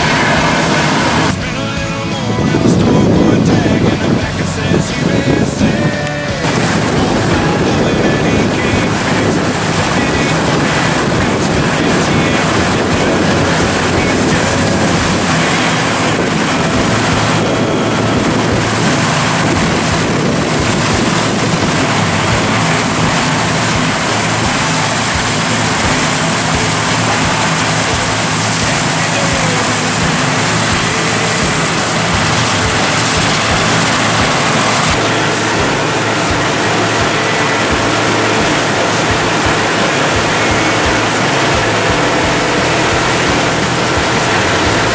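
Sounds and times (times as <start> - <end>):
combine harvester running: 0.0 - 44.9
wind on microphone: 0.0 - 44.9.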